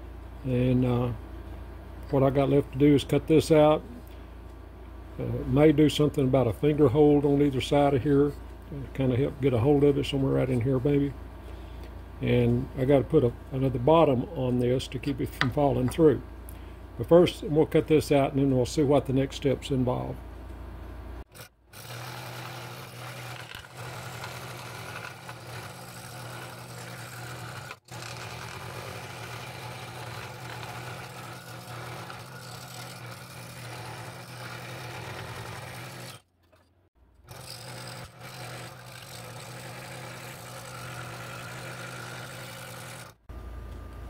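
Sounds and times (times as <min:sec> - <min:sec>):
scroll saw cutting wood: 0:21.3 - 0:43.3.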